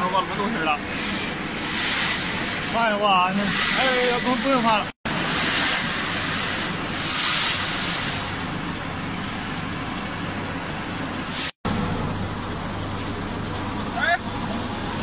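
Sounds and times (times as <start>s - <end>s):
feed pellet machinery running: 0.1s - 15.0s.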